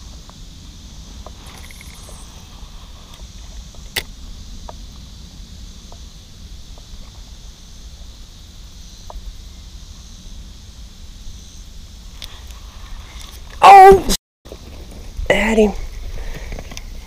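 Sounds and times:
steady high hiss: 0:00.0 - 0:17.0
wind rumbling on microphone: 0:00.0 - 0:17.0
sharp click: 0:03.8 - 0:04.1
faint ticks: 0:12.2 - 0:13.5.

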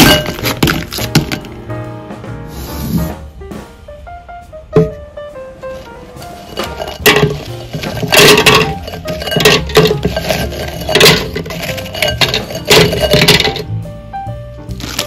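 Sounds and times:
cookies clacking into blender jar: 0:06.5 - 0:13.7, 0:14.8 - 0:15.0.

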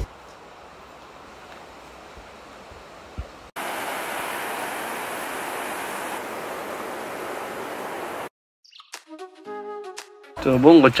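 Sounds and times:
river rushing: 0:03.6 - 0:08.3.

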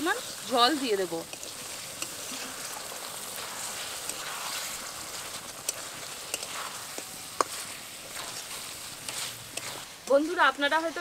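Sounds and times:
chicken sizzling in a pan: 0:00.0 - 0:11.0.

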